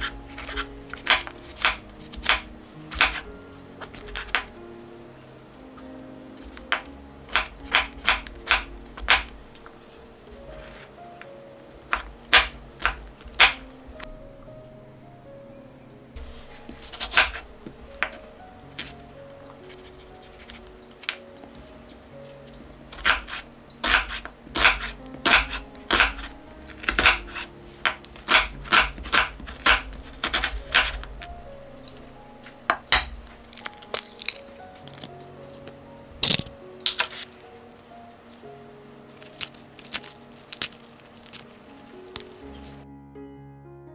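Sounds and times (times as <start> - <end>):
soft background music: 0.0 - 43.9
knife chopping on wooden board: 0.4 - 3.2, 6.4 - 9.3, 16.9 - 17.4, 23.0 - 31.2.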